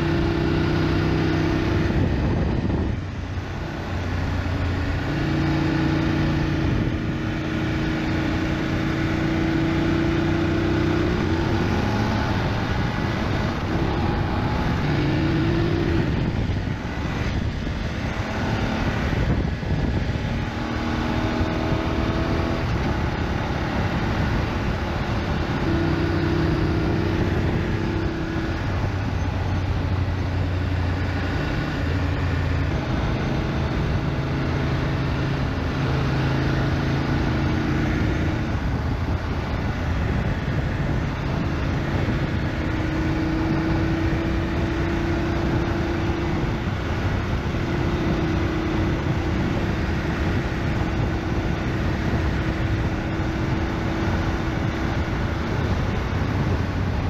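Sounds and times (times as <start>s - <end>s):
motorcycle engine running: 0.0s - 57.0s
road and rushing air noise: 0.0s - 57.0s.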